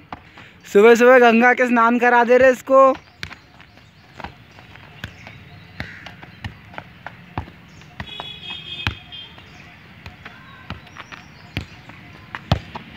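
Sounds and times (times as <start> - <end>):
football kicked and bouncing: 0.0 - 0.4, 2.2 - 12.9.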